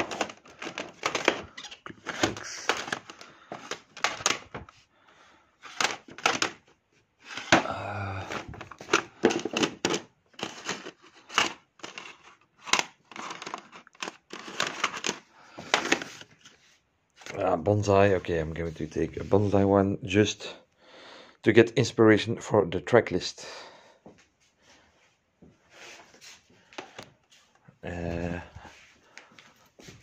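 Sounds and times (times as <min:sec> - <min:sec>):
plastic cases clacking: 0:00.0 - 0:04.8, 0:05.6 - 0:16.6.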